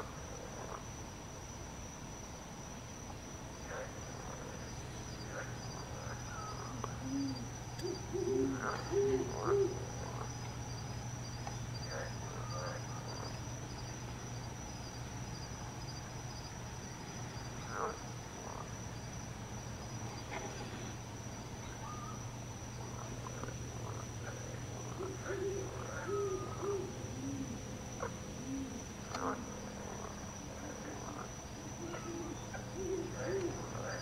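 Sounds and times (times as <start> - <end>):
faint pulsing insect trill: 0.0 - 34.0
high-pitched night insects: 0.0 - 34.0
owl hooting: 5.3 - 9.9, 21.8 - 22.3, 24.9 - 27.6, 31.7 - 33.9.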